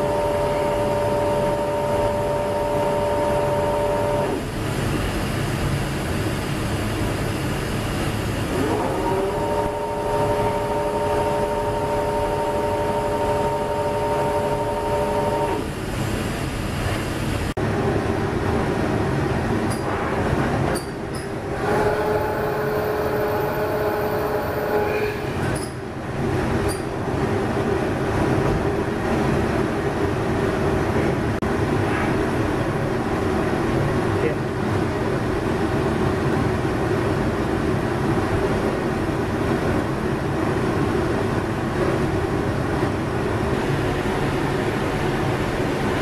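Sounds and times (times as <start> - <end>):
machine spindle whine: 0.0 - 17.4, 20.8 - 25.8.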